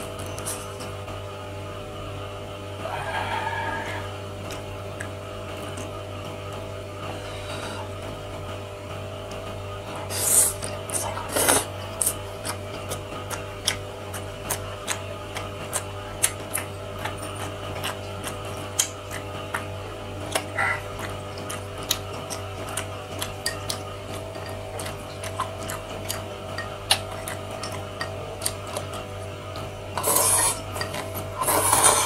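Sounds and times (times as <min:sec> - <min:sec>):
steady low hum: 0:00.0 - 0:32.0
wet chewing and lip-smacking: 0:04.4 - 0:06.0, 0:09.9 - 0:32.0
slurp from a spoon: 0:10.0 - 0:12.2, 0:30.0 - 0:32.0.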